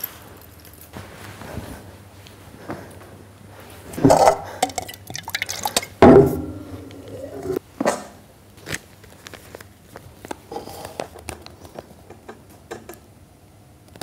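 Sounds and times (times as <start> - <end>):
liquid sounds in glass: 4.0 - 6.1.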